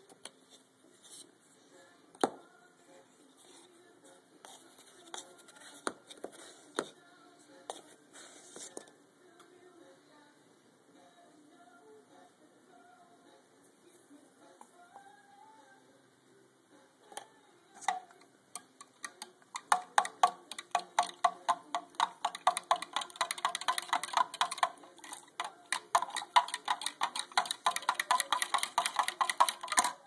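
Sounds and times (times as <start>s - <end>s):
spoon clinking in cup: 18.6s - 30.0s.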